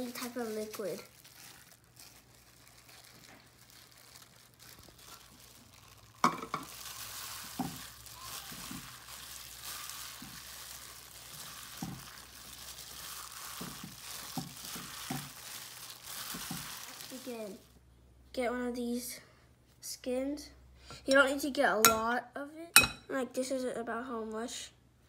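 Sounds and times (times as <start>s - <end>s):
hands squishing wet filling: 0.0s - 17.6s
plastic gloves crinkling: 0.0s - 17.8s.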